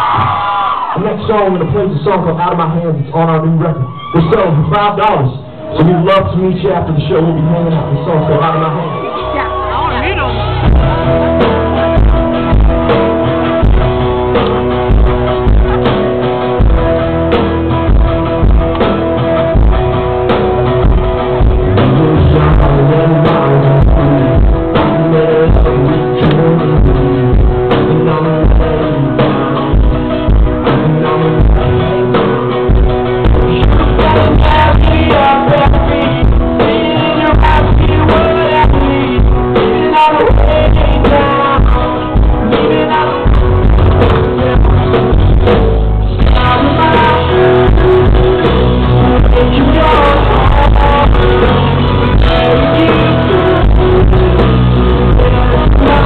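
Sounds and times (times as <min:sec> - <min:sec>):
live rock band playing: 0:00.0 - 0:56.0
man singing: 0:21.4 - 0:32.2, 0:33.2 - 0:56.0.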